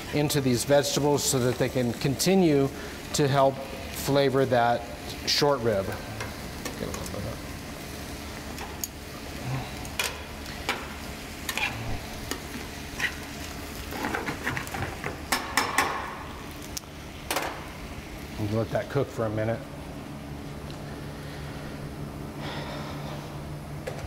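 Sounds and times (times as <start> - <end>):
vegetables sizzling in a pan: 0.0 - 18.6.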